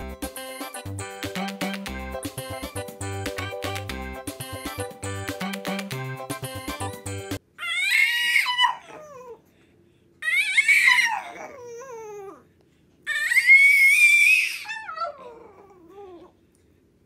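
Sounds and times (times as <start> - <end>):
dog howling: 13.1 - 16.3.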